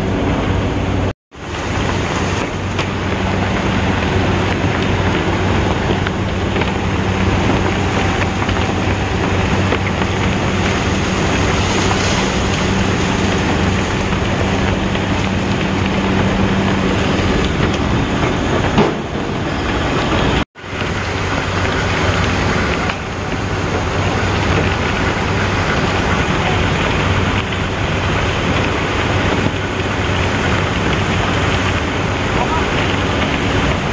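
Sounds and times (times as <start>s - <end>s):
conveyor machinery din: 0.0s - 33.9s.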